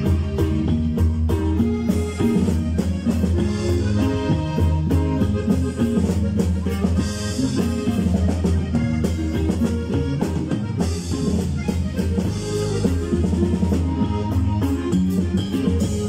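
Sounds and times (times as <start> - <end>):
drum kit beat: 0.0 - 16.0
live band playing: 0.0 - 16.0.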